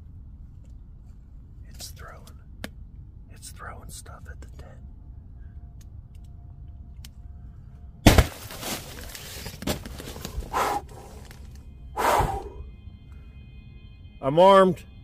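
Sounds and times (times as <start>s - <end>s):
loud thump against tent: 8.0s - 8.8s.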